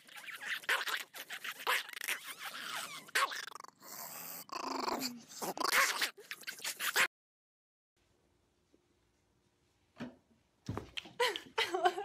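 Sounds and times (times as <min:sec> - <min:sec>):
small dog growling: 0:02.5 - 0:06.2.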